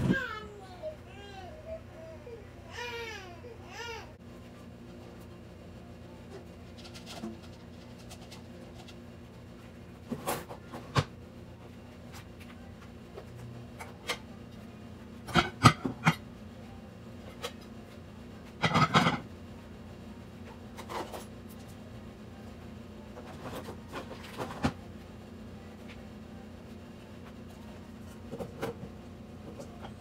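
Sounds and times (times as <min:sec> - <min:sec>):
faint steady hum: 0:00.0 - 0:30.0
dishes clinking and clattering: 0:15.3 - 0:16.2, 0:18.6 - 0:19.3.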